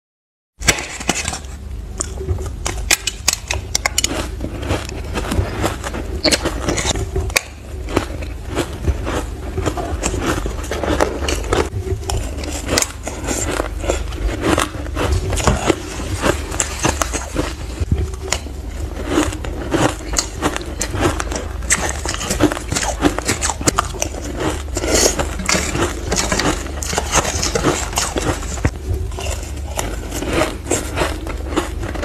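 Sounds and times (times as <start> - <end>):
crunching and chewing shaved ice: 0.6 - 32.0
steady low hum: 0.6 - 32.0.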